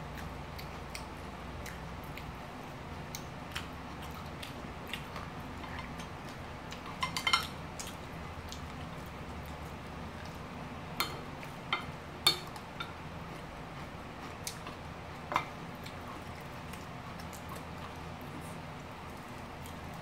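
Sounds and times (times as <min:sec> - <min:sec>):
low steady hum: 0:00.0 - 0:20.0
chopsticks clicking on plates: 0:06.7 - 0:07.9, 0:11.0 - 0:13.0.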